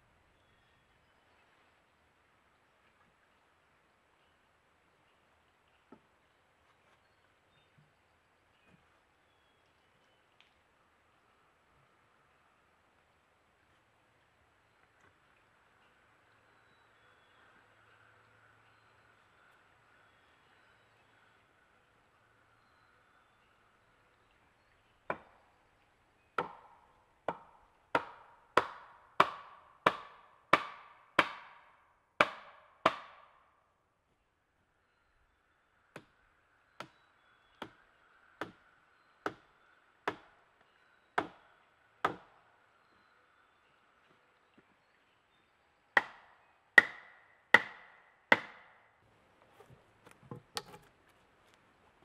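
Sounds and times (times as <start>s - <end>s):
wood being struck: 26.4s - 33.4s, 46.0s - 48.7s, 49.6s - 51.0s
faint wood knocks: 49.4s - 50.9s.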